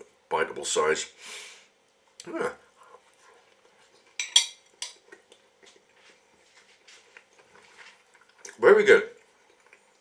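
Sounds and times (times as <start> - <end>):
metal fork clinking on dish: 4.2 - 5.0.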